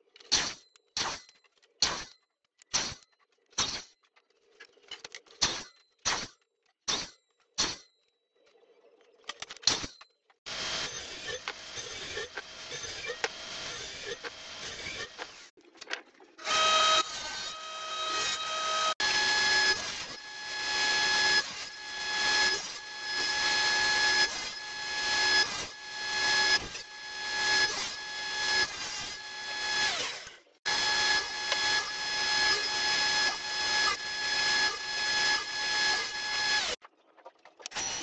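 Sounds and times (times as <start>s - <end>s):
table saw whining: 10.5s - 15.5s, 16.4s - 36.8s.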